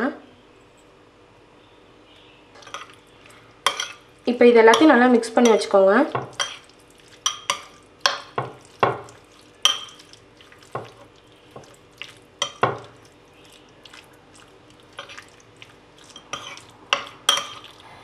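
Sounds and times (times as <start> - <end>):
spoon clinking in ceramic bowl: 3.6 - 4.0, 7.2 - 10.1, 12.4 - 13.0, 16.1 - 17.7.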